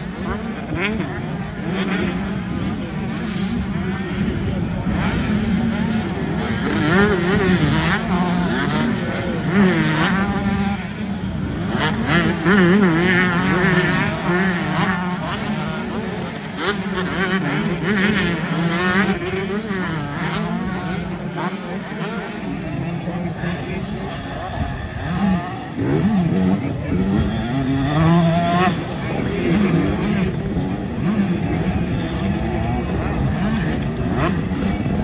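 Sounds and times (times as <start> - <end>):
two-stroke motocross bikes racing: 0.0 - 35.0.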